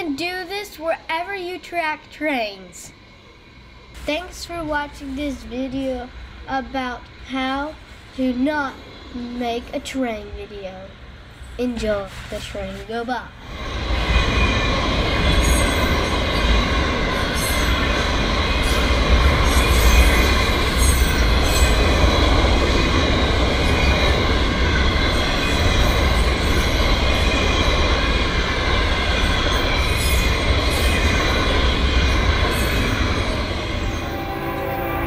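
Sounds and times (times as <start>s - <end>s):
train wheels rumbling on rail: 0.0s - 35.0s
wheel clatter and squeal: 29.0s - 33.6s.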